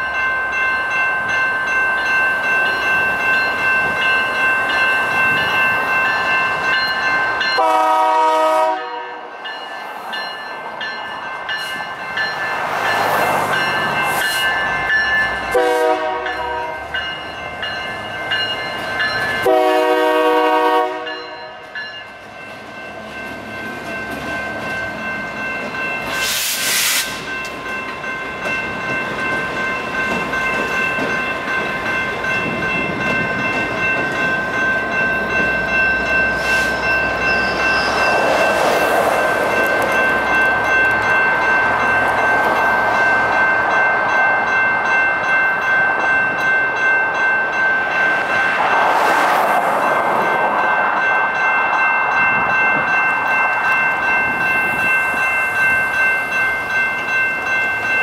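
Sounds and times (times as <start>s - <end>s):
crossing electronic bell: 0.0s - 26.2s, 27.1s - 58.0s
train horn blasts: 7.6s - 9.3s, 15.5s - 16.8s, 19.4s - 21.6s
train wheel clatter: 21.6s - 42.7s
air brake hiss: 26.1s - 27.3s.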